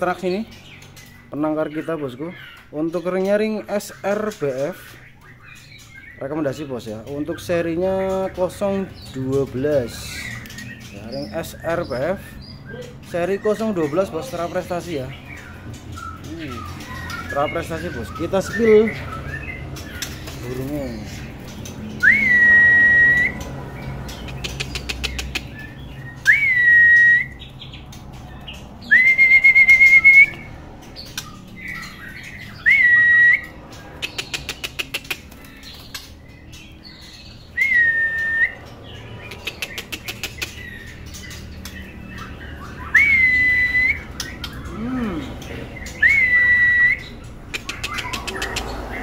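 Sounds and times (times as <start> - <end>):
bird ticking notes: 0.0 - 49.0
bird calling with clear whistles: 10.0 - 21.3, 21.9 - 23.5, 24.1 - 27.8, 28.4 - 41.4, 42.0 - 48.8.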